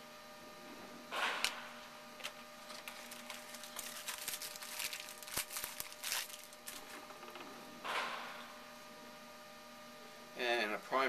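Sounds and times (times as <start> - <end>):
faint electrical hum: 0.0 - 11.0
cards and wrapper crinkling: 2.2 - 7.0.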